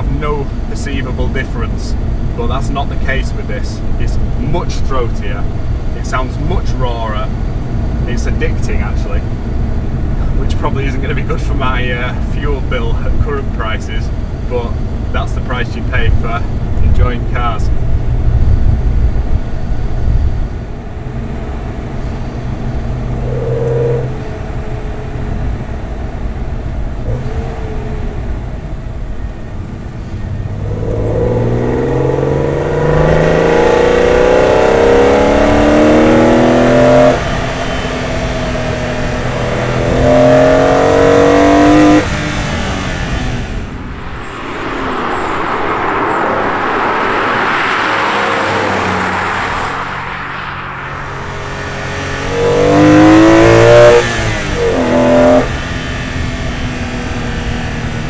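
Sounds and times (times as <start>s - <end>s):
car engine accelerating: 0.0s - 58.0s
car driving past: 21.1s - 25.6s, 30.0s - 56.5s
engine induction note: 22.0s - 25.8s.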